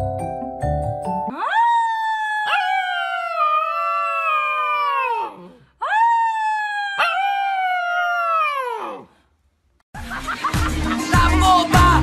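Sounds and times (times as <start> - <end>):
puppy howling: 1.3 - 9.1.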